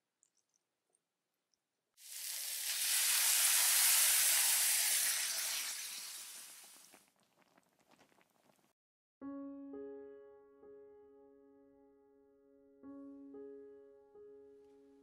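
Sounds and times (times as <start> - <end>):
food sizzling in pot: 2.0 - 8.6
faint crackles: 2.0 - 8.8.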